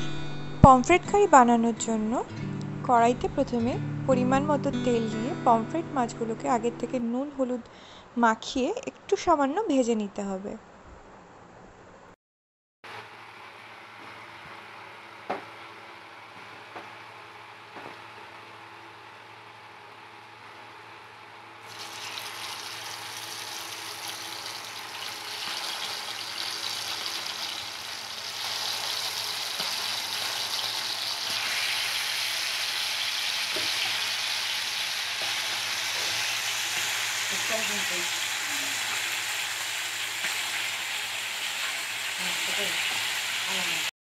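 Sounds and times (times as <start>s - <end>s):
fish sizzling in hot oil: 21.6s - 43.9s.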